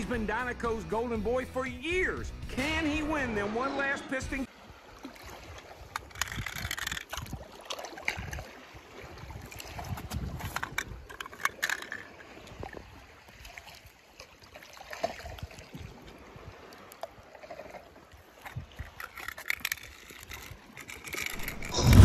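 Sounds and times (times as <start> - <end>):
water sloshing and gurgling: 3.1 - 22.0
toy cars clicking and knocking: 6.0 - 7.3, 10.5 - 12.0, 19.0 - 21.5.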